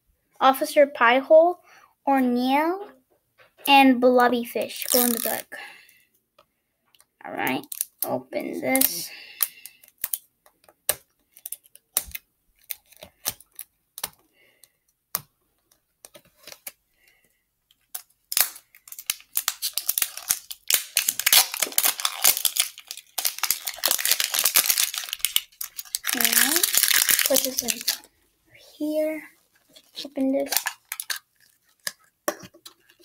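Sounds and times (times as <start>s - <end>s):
plastic wrapper crinkling and tearing: 4.7s - 5.4s, 7.4s - 8.1s, 8.7s - 10.3s, 10.9s - 28.2s, 29.3s - 33.0s
plastic packaging clicks and taps: 9.4s - 16.8s.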